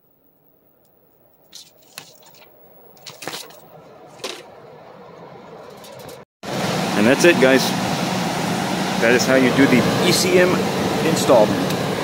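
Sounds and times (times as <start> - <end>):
blower motor spinning up: 3.6 - 12.0.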